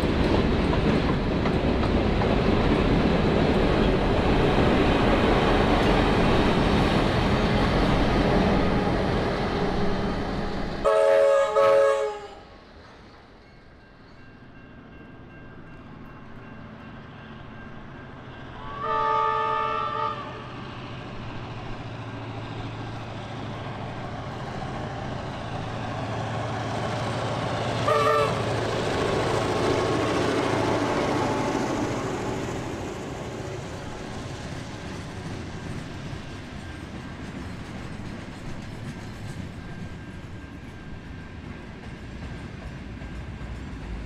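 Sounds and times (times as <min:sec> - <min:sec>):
diesel locomotive engine drone: 0:00.0 - 0:44.0
locomotive horn blast: 0:08.6 - 0:12.5, 0:18.6 - 0:20.5, 0:27.8 - 0:28.6.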